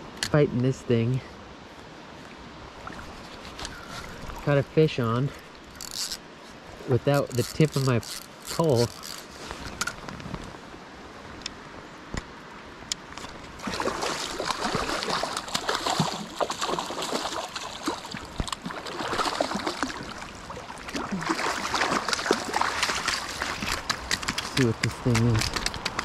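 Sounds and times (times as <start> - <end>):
fish splashing in water: 13.6 - 24.9.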